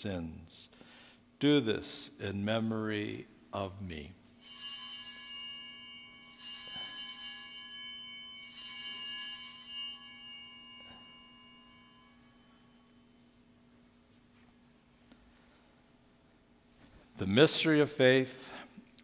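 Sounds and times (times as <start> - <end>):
altar bells ringing: 4.2 - 14.2.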